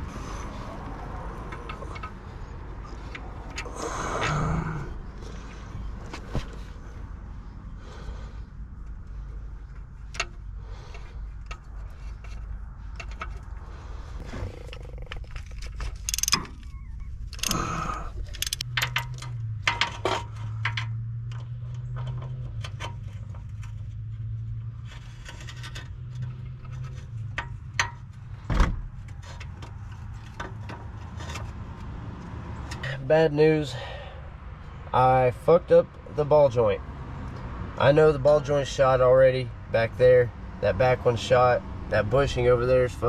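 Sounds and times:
metal tools clinking and scraping: 14.6s - 21.0s.

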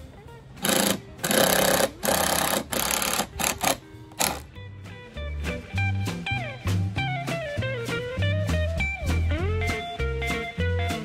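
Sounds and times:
guitar background music: 0.0s - 11.0s
power driver driving screws: 0.6s - 4.4s.

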